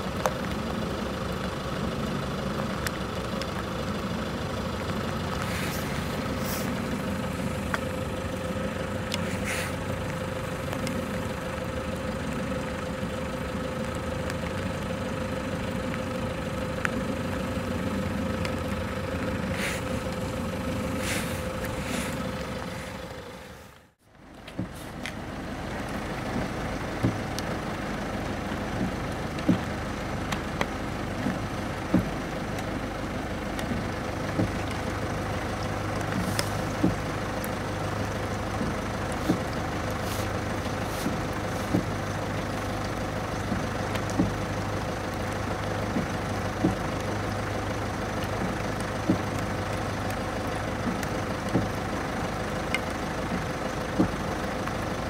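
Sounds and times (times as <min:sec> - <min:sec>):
distant machinery drone: 0:00.0 - 0:55.0.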